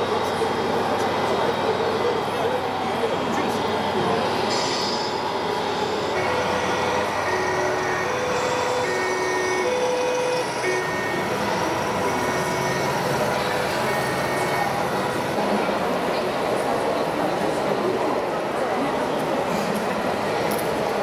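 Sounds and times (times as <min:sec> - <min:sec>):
busy hall background noise: 0:00.0 - 0:21.0
two-tone emergency siren: 0:06.1 - 0:15.4.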